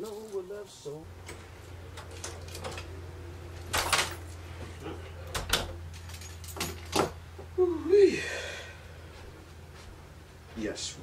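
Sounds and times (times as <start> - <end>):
steady low hum: 0.0 - 11.0
door opening and shutting: 1.2 - 7.2.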